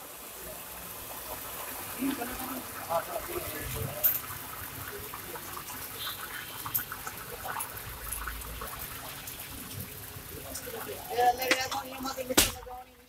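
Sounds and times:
oil sizzling in a wok: 0.0s - 13.0s.

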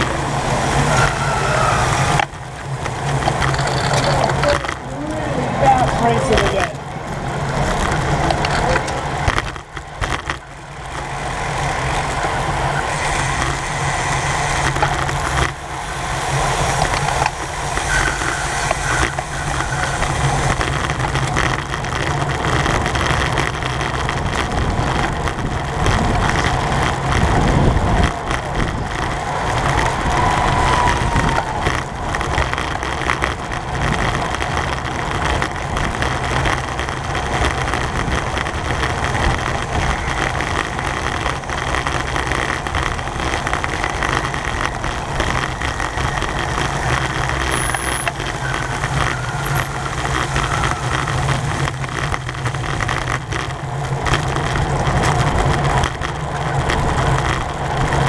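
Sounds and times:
bicycle tyre and road noise: 0.0s - 58.0s
wind rushing over microphone: 0.0s - 58.0s.

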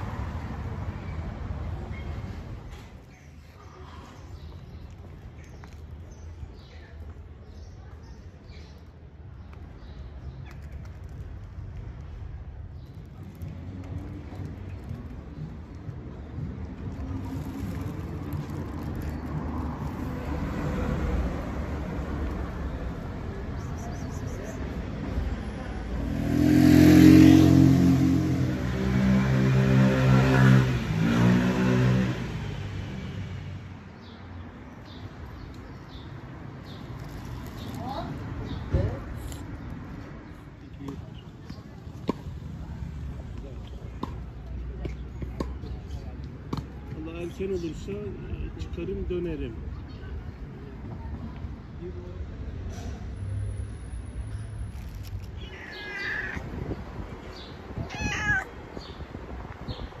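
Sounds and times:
low traffic hum: 0.0s - 60.0s
cat meowing: 55.4s - 56.6s, 57.8s - 58.6s.

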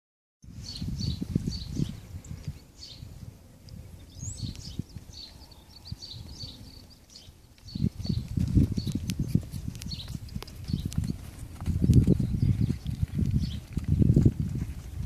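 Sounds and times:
small birds chirping: 0.5s - 15.0s
pony hooves thudding on dirt: 3.3s - 15.0s.

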